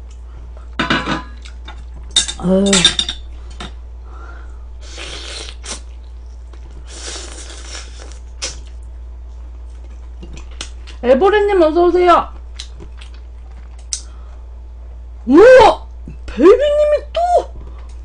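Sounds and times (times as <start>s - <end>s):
dishes and cutlery clinking: 0.8s - 3.7s
woman humming: 2.4s - 2.9s, 15.3s - 17.6s.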